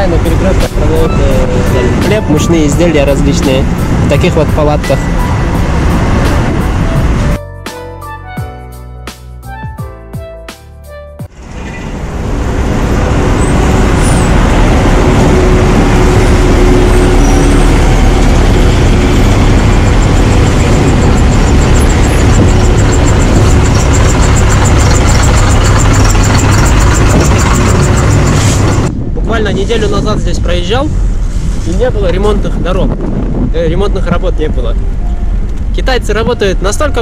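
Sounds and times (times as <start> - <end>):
diesel machinery engines rumbling: 0.0 - 7.4, 11.3 - 37.0
street traffic: 0.0 - 7.4, 11.2 - 37.0.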